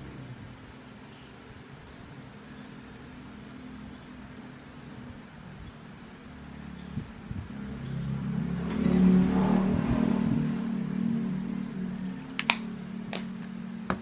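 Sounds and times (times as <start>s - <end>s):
sharp clicks: 12.2s - 13.3s.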